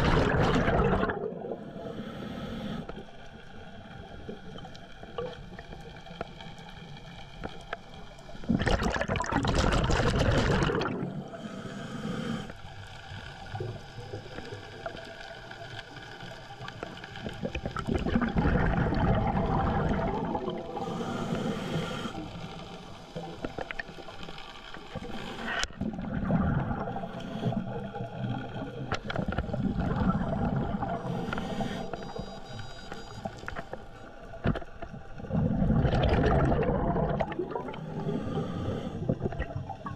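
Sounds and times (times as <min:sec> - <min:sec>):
underwater bubbling exhalations: 0:00.0 - 0:01.7, 0:08.4 - 0:11.4, 0:17.2 - 0:22.3, 0:24.9 - 0:32.2, 0:33.2 - 0:39.9
faint steady hum: 0:00.0 - 0:39.9.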